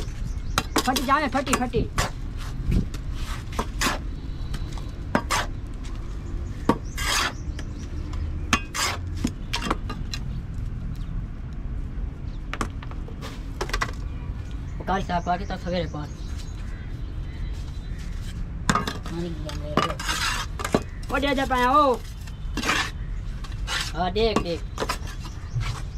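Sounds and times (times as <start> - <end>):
trowel scraping wet concrete: 2.0 - 4.1, 5.2 - 5.5, 6.8 - 7.5, 8.6 - 9.7, 19.0 - 25.9.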